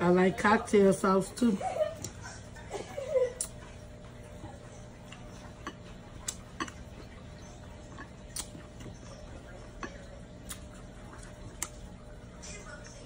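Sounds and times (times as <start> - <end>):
steady low hum: 0.0 - 13.0
eating clicks and smacks: 3.4 - 3.7, 5.1 - 9.0, 9.7 - 11.9.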